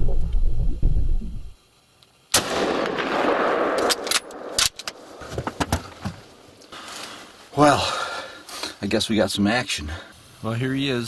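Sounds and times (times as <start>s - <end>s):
gunshot: 2.3s - 4.6s.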